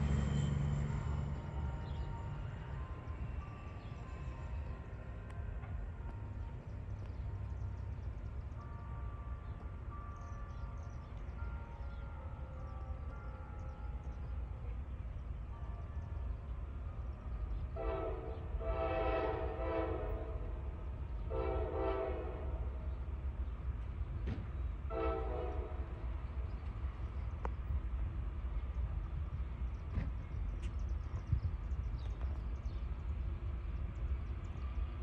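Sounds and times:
train rumble: 0.0s - 35.0s
train horn blasts: 17.7s - 22.9s, 24.8s - 26.2s.

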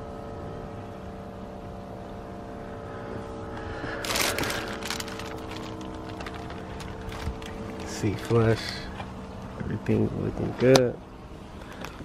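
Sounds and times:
steady hum inside truck cab: 0.0s - 12.0s
loud rustle: 3.8s - 8.4s.

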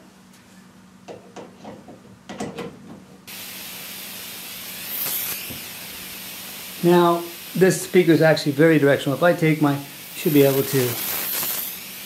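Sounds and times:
speaker noise hiss: 3.3s - 12.0s.

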